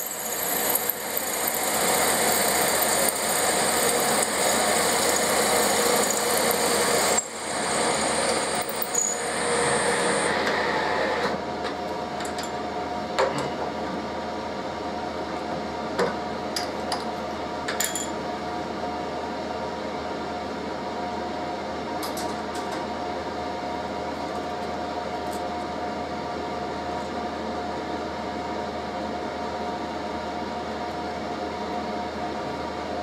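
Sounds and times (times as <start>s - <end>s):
heater humming: 0.0s - 14.3s.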